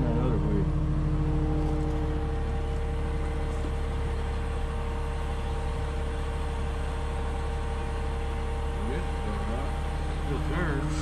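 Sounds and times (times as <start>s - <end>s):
faint steady tones: 0.0s - 11.0s
low mechanical hum: 0.0s - 11.0s.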